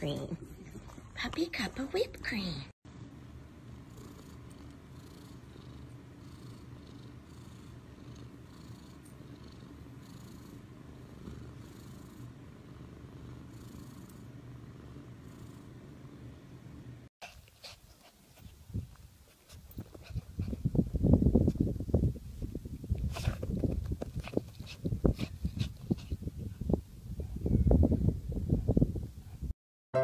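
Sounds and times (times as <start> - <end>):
cat purring: 3.6 - 16.9.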